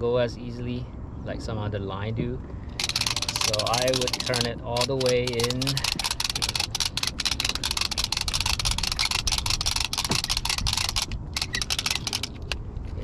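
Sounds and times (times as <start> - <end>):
low steady rumble: 0.0 - 13.0
reel clicking rapidly: 2.8 - 12.6.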